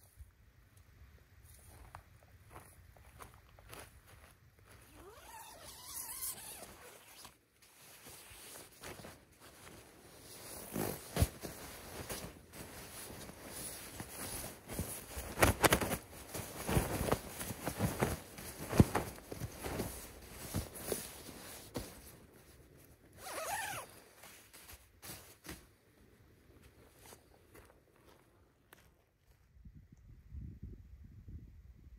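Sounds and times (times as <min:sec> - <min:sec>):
nylon sleeping bag rustling: 0:04.7 - 0:25.8.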